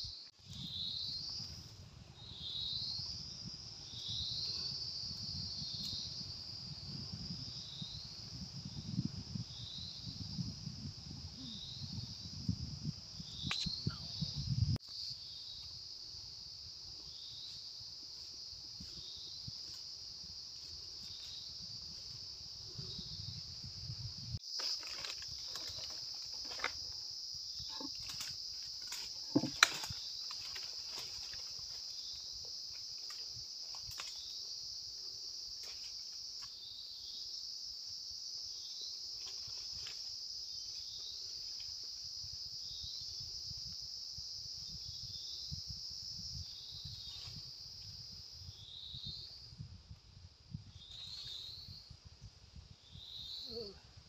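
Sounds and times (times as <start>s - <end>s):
insects droning: 0.0s - 54.0s.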